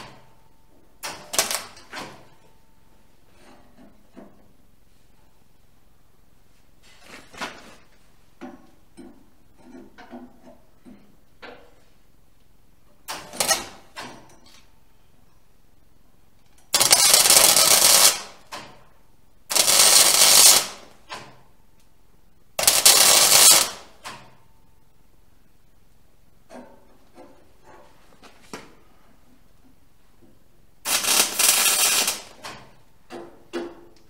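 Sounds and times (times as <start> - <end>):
electric arc welding: 1.0 - 1.9, 13.1 - 13.8, 16.7 - 18.7, 19.5 - 21.0, 22.6 - 24.0, 30.8 - 32.6.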